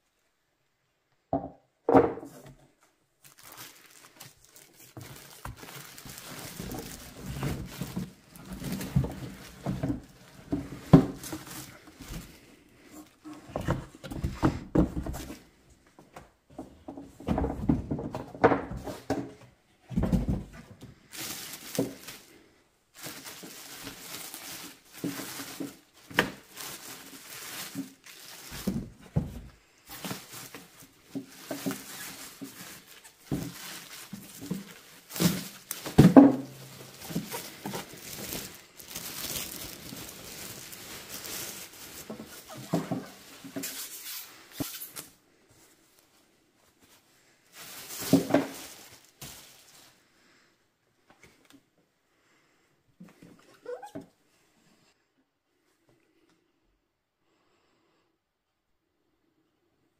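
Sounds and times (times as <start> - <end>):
plastic bag crinkling: 3.2 - 12.4, 21.1 - 45.2, 47.5 - 50.0.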